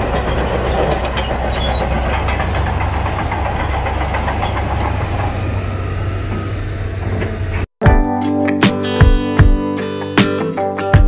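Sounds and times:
bulldozer diesel engine running: 0.0 - 7.7.

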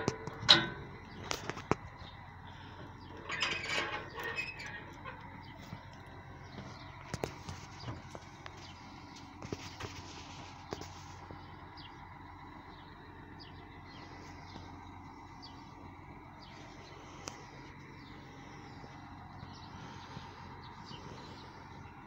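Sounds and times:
steady engine hum: 0.0 - 22.0.

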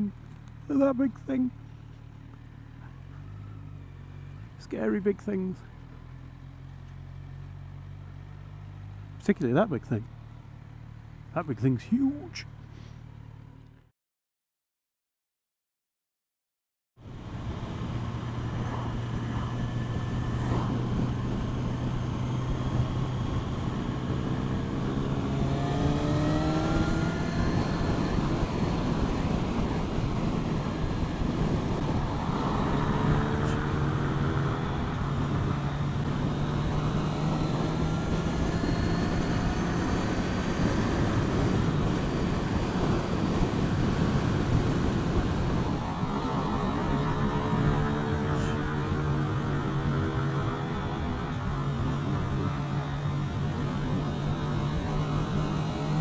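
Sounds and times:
road noise: 0.0 - 13.9, 17.0 - 56.0
motorcycle engine accelerating: 17.0 - 56.0
heavy wind noise: 17.3 - 56.0.

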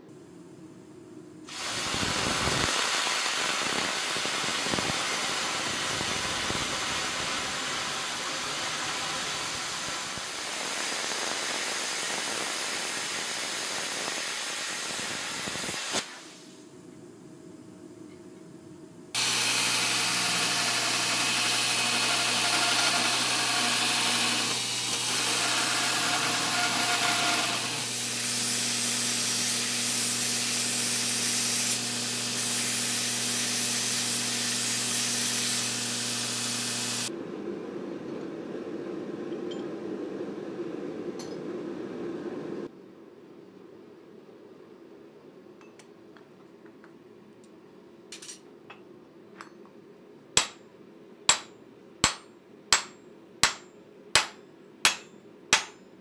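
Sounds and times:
belt grinder humming: 19.2 - 28.1.

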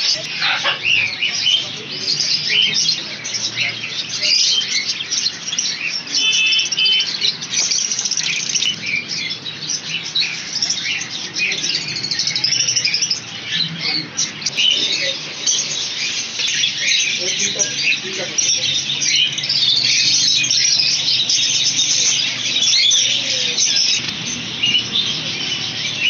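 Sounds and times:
small parrots chirping and squawking: 0.0 - 26.0.

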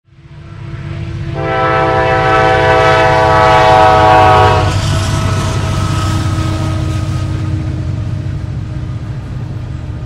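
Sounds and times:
locomotive rumble: 0.1 - 10.0
locomotive air horn blast: 0.4 - 7.8.

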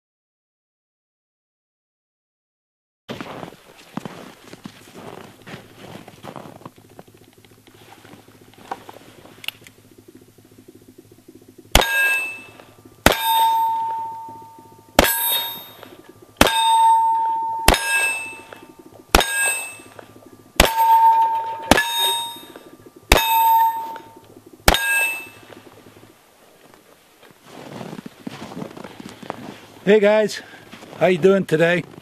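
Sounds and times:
steel plate target ringing: 11.7 - 25.7.

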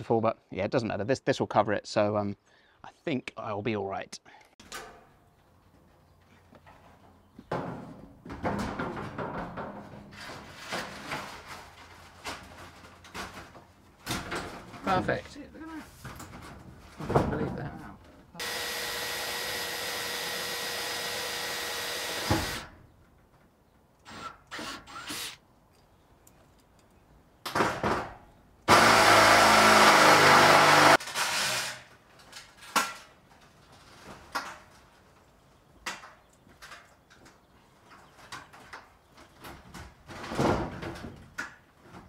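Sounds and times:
sheet metal knocks and clatters: 7.5 - 11.6
drill running against metal sheeting: 18.4 - 22.7, 24.1 - 25.4, 28.7 - 31.8.

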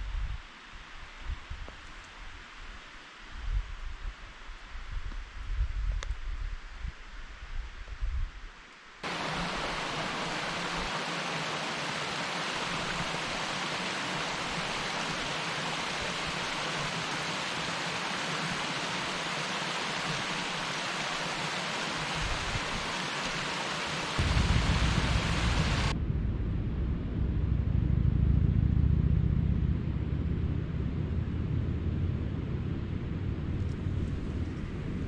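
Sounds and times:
stream rushing over rocks: 9.0 - 25.9.

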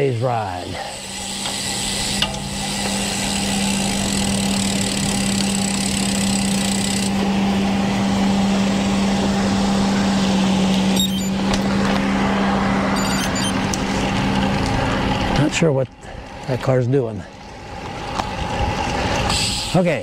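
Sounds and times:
bicycle tyre and wind noise: 0.0 - 20.0
low hum: 0.8 - 16.5.

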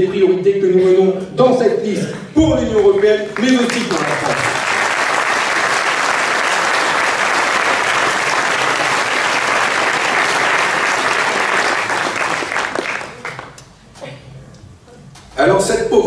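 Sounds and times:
audience applauding: 2.7 - 13.6.

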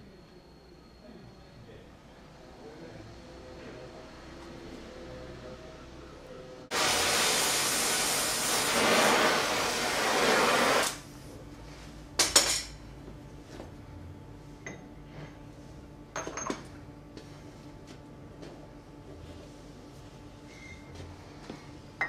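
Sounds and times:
loud rushing hiss: 6.7 - 11.0.

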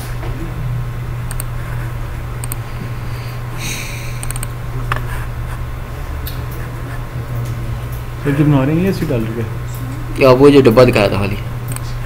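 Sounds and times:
low electrical hum: 0.0 - 12.0
computer mouse clicks: 1.3 - 1.5, 2.4 - 2.6, 4.1 - 5.1.

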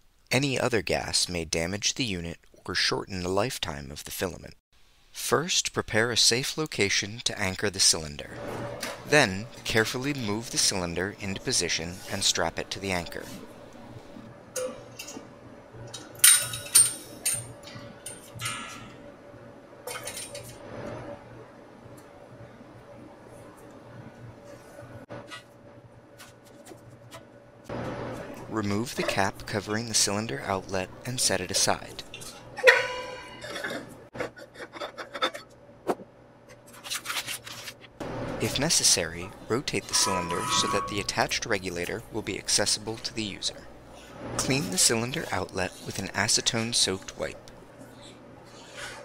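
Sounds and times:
metal threads scraping: 39.7 - 41.4.

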